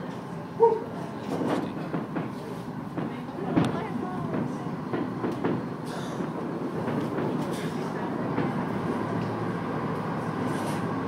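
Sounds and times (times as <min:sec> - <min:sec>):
muffled firework pops: 0:01.9 - 0:05.6
boat engine drone: 0:03.4 - 0:11.0.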